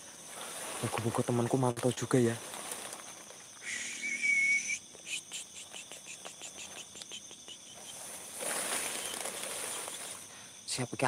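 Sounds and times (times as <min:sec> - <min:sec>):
crickets chirring: 0:00.0 - 0:11.0
clicks and rustles in grass: 0:00.2 - 0:03.6, 0:05.3 - 0:10.3.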